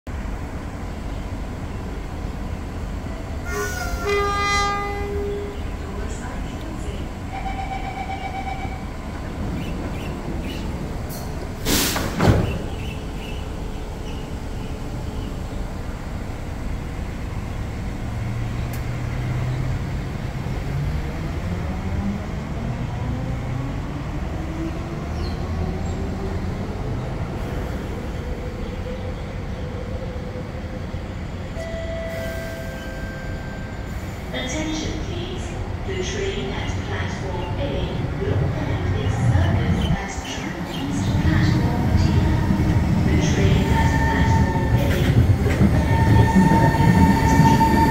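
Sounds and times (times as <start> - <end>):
train rumble: 0.1 - 47.9.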